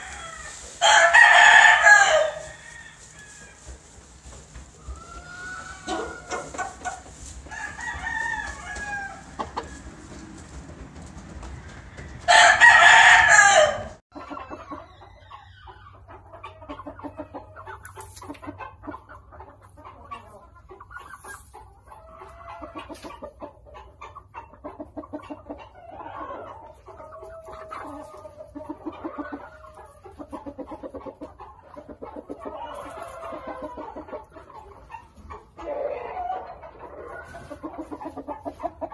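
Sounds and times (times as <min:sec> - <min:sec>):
rooster crowing: 0:00.0 - 0:03.6, 0:04.8 - 0:06.8, 0:07.5 - 0:09.9, 0:11.6 - 0:14.0
chickens clucking: 0:00.0 - 0:38.9.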